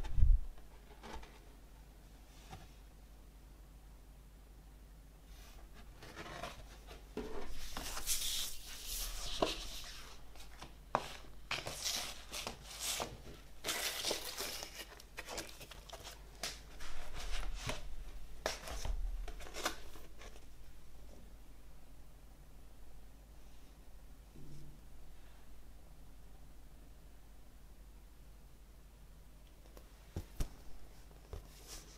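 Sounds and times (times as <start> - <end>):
paper rustling and crinkling: 5.9 - 20.5.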